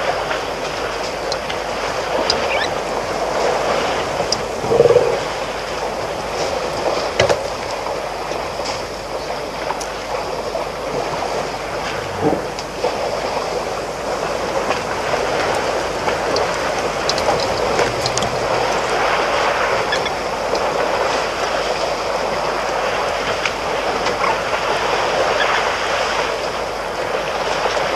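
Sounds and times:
rushing wind: 0.0s - 27.3s
faint ticks: 2.2s - 2.7s, 16.2s - 18.8s.

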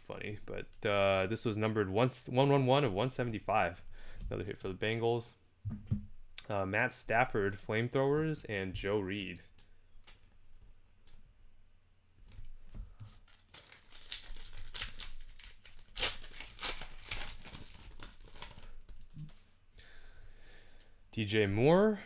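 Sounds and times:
wrapper tearing and crinkling: 13.2s - 19.3s.

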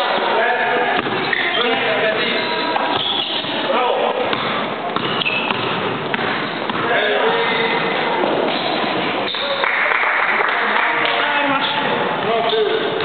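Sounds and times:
ball bouncing on court floor: 0.9s - 1.6s, 2.8s - 3.6s, 4.2s - 9.4s.

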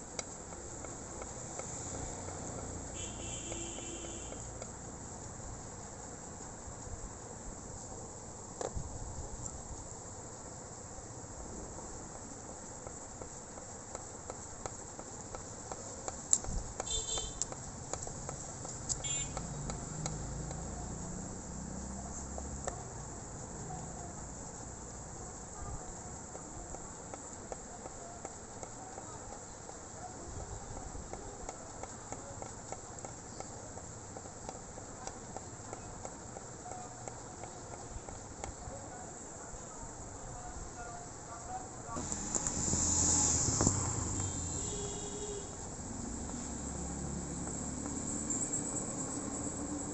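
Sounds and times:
high-pitched insect chirring: 2.9s - 4.6s, 16.8s - 17.6s, 46.4s - 49.9s.

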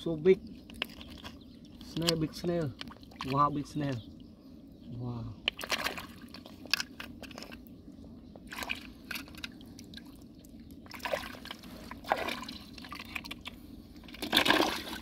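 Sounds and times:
water dripping and trickling: 0.0s - 4.3s
muddy water sloshing and splashing: 0.0s - 4.4s, 5.4s - 15.0s.

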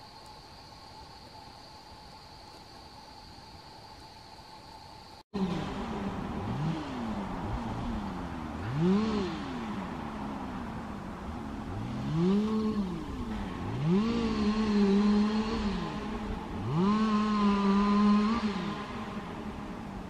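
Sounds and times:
engine revving: 5.4s - 20.0s.

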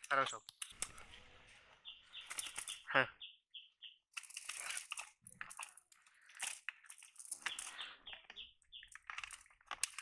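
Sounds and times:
bird chirping: 0.1s - 4.4s, 7.1s - 10.0s
net rustling and crackling: 4.1s - 7.9s.

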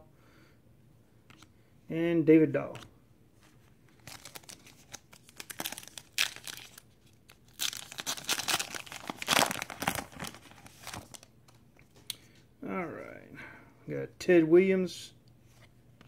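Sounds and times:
wrapper tearing and crackling: 4.0s - 11.3s.

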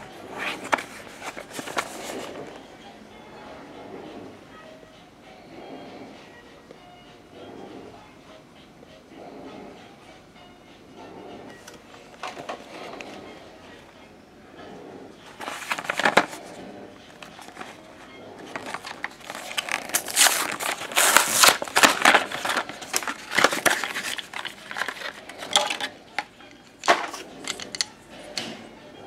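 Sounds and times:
cardboard packaging tearing: 15.4s - 16.6s, 18.5s - 25.9s.

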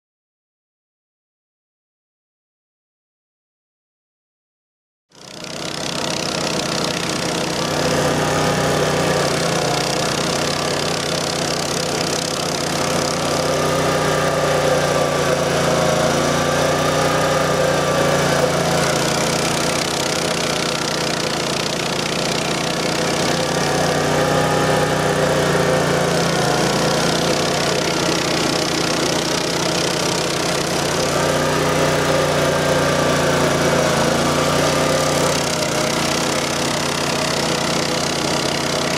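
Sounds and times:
stump grinder grinding wood: 5.1s - 38.9s.

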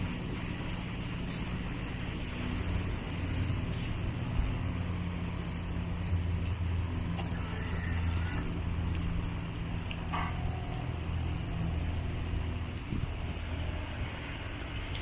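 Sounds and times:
vehicle running hum: 0.0s - 15.0s.

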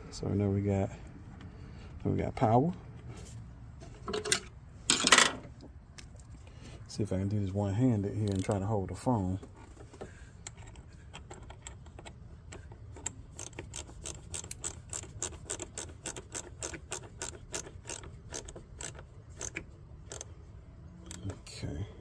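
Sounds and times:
ratchet wrench clicking: 8.2s - 8.6s, 10.5s - 20.3s, 21.0s - 21.4s.

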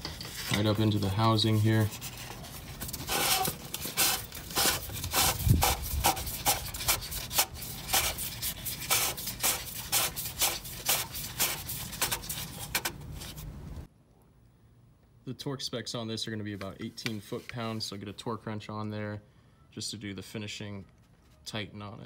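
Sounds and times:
cap rasping on threads: 2.9s - 13.0s.

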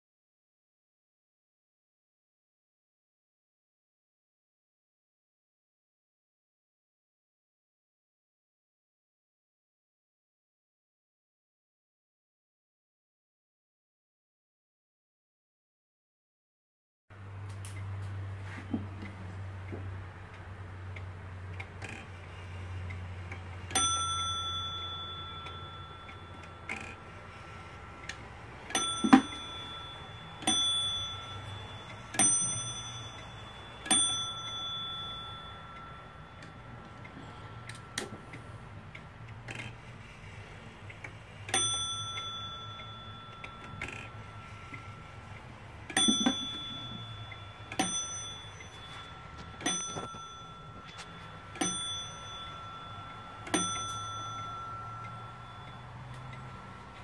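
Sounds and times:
clock movement clicks: 17.4s - 57.0s
clock bell striking: 21.9s - 38.9s, 41.4s - 57.0s.

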